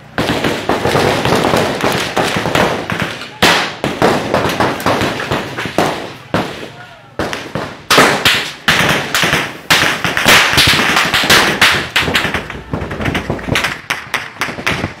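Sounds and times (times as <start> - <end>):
loud sharp bangs and knocks: 0.1 - 15.0.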